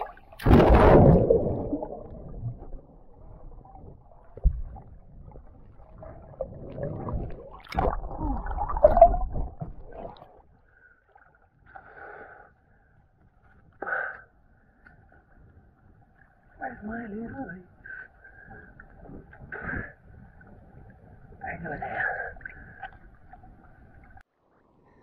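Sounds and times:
muffled underwater gurgling: 0:00.0 - 0:10.4
water splashing: 0:00.0 - 0:10.4.

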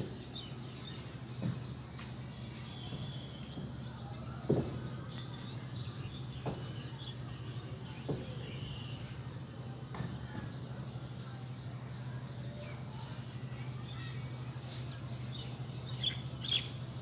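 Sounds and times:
small birds chirping: 0:00.0 - 0:17.0
soft knocks: 0:04.5 - 0:04.9, 0:06.4 - 0:06.8.

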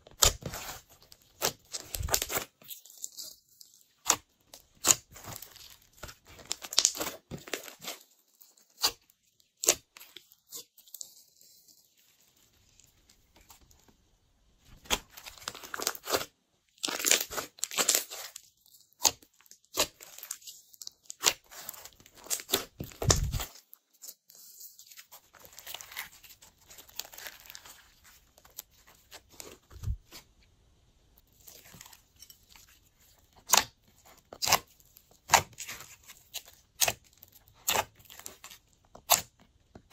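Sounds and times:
slime crackling and popping: 0:00.1 - 0:11.2, 0:14.8 - 0:24.2, 0:33.1 - 0:39.9.

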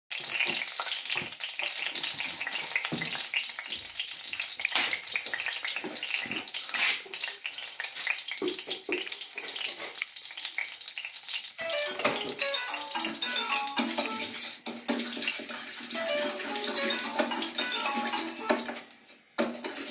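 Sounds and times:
oil crackling and sizzling: 0:00.1 - 0:19.9
melodic music: 0:11.6 - 0:14.5, 0:15.9 - 0:18.9.

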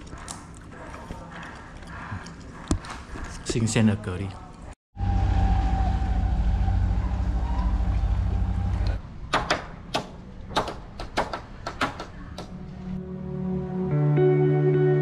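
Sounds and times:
boat engine throbbing: 0:05.0 - 0:09.0
sharp irregular knocks: 0:09.3 - 0:12.6.

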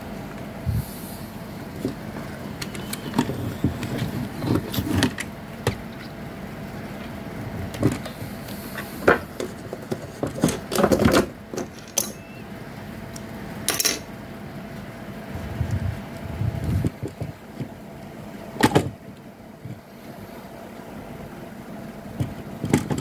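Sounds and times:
faint steady hum: 0:00.0 - 0:23.0
plastic parts clicking and rustling: 0:01.7 - 0:06.1, 0:08.8 - 0:12.3, 0:22.2 - 0:23.0.

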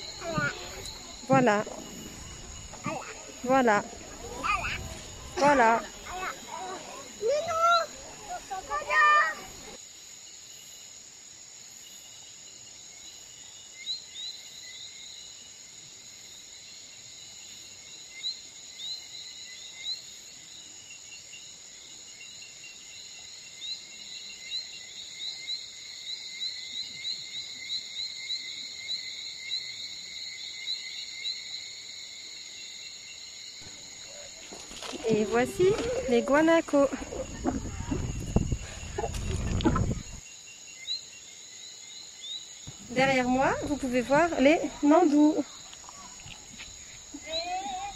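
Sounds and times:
steady high hiss: 0:00.0 - 0:12.0
insects chirping: 0:00.0 - 0:47.9.

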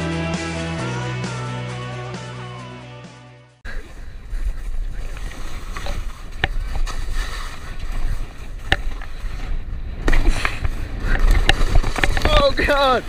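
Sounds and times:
skis scraping over snow: 0:03.8 - 0:13.0.

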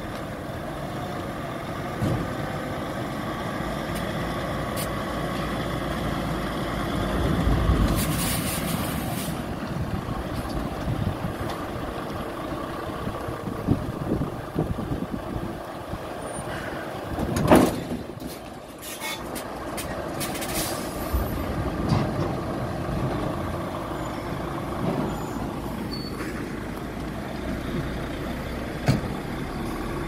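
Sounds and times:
diesel engine running: 0:00.0 - 0:30.0
air brake hiss: 0:07.9 - 0:09.4, 0:20.4 - 0:21.2.

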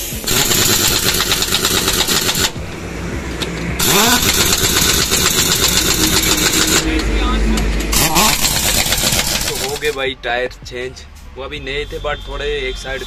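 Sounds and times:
impact wrench rattling: 0:00.0 - 0:02.7, 0:03.3 - 0:10.0.

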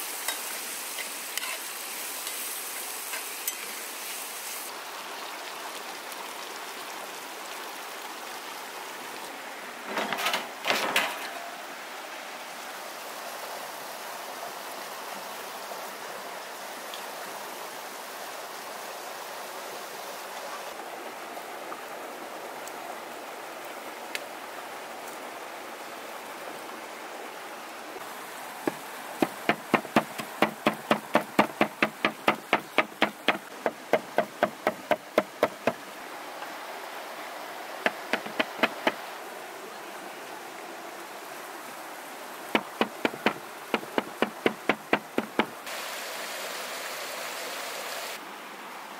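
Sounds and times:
flowing river water: 0:00.0 - 0:48.9
cleaver chopping on wooden board: 0:28.7 - 0:35.8, 0:37.9 - 0:39.0, 0:42.6 - 0:45.5.

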